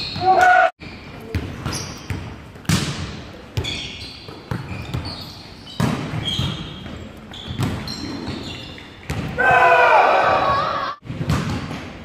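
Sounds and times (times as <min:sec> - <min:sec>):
shoe squeaks: 0:00.0 - 0:02.2, 0:03.6 - 0:09.1
volleyball hits: 0:05.8 - 0:08.4, 0:09.0 - 0:09.6, 0:10.2 - 0:12.0.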